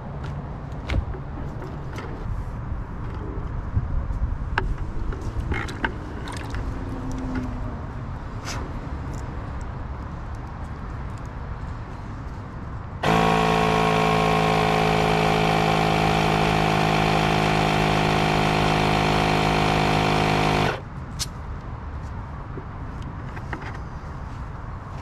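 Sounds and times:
electric compressor running: 13.0 - 20.8.

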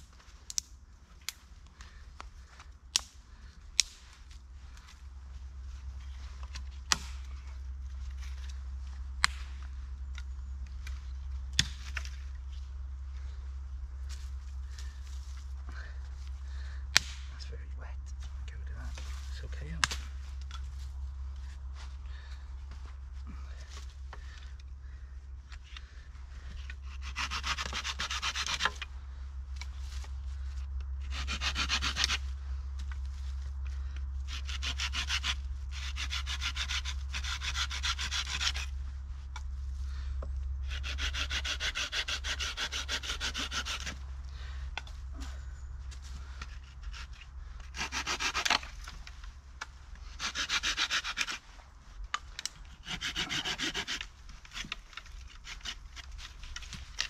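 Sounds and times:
hand saw rasping through wood: 26.8 - 28.8, 31.1 - 32.2, 34.3 - 38.7, 40.6 - 44.0, 46.6 - 48.8, 50.0 - 51.4, 52.7 - 56.7.

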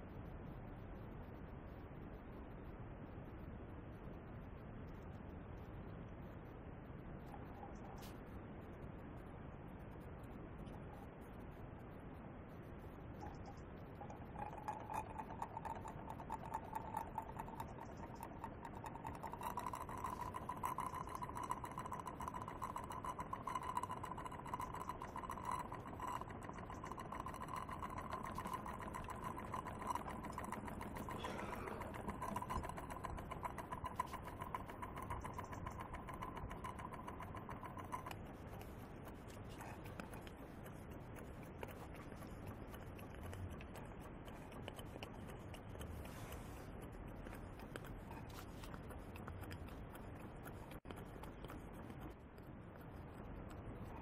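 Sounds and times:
model steam engine running: 14.4 - 38.1.

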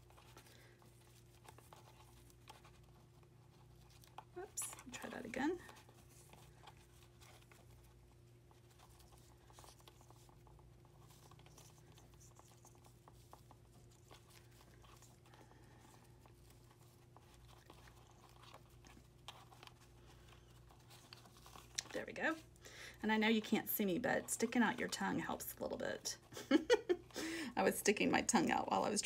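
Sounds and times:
ribbon rustling and clicking: 0.0 - 22.6.

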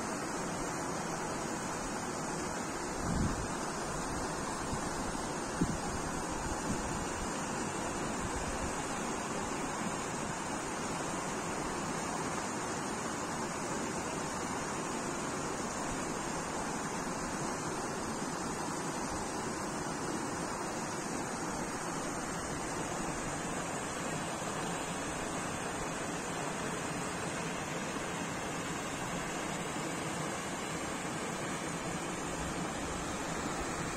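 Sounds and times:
stream rushing over rocks: 0.0 - 33.9.

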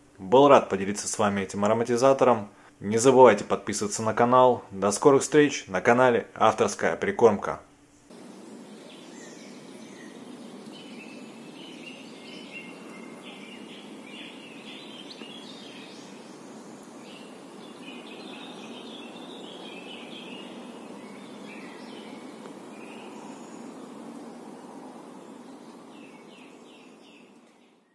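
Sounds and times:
steady background noise: 0.0 - 27.5
birds chirping: 7.9 - 27.9.

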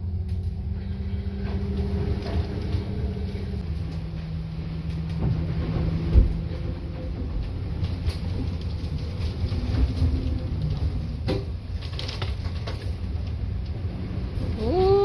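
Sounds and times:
low rumbling wind and seas: 0.0 - 15.0.

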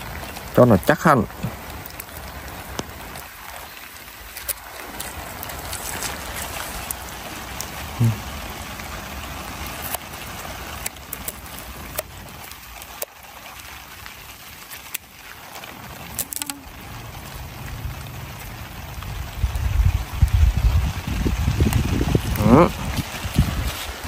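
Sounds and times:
steady rain patter: 0.0 - 24.0.

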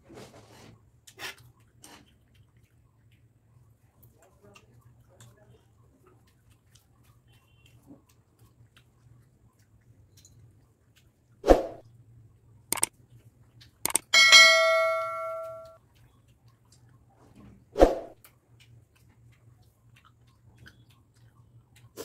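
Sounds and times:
quick clicks: 12.7 - 12.9, 13.9 - 14.1
bell dinging: 14.0 - 15.8.

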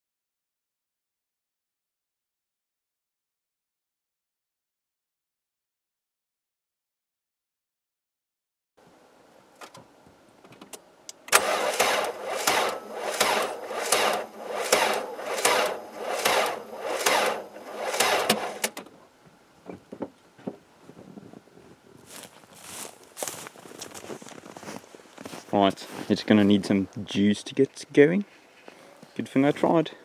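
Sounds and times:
starter motor cranking engine: 11.2 - 18.8.

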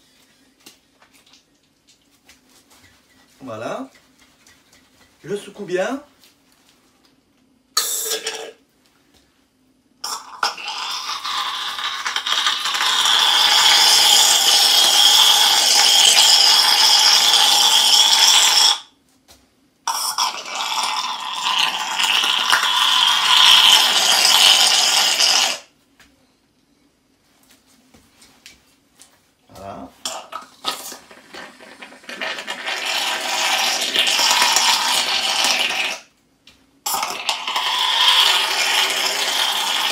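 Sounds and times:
cream whipper spraying foam: 10.4 - 18.8, 32.2 - 36.0, 36.9 - 39.9.

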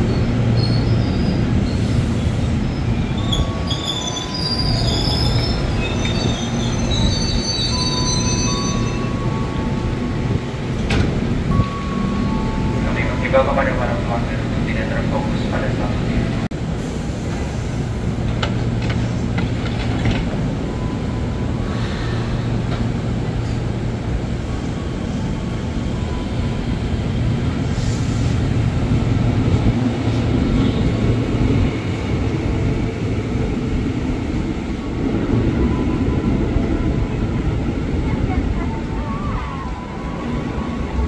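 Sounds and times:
train doors clunking shut: 10.2 - 12.3.

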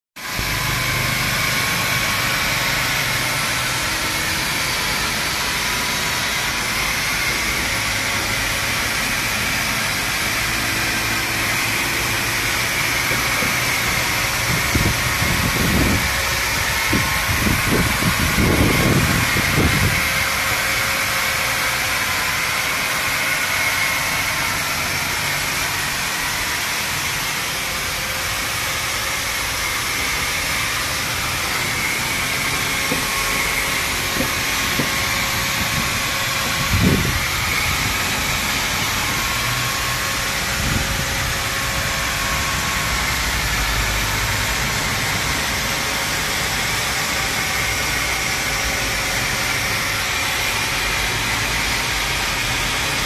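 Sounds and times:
machine running with hiss and whine: 0.2 - 53.0.

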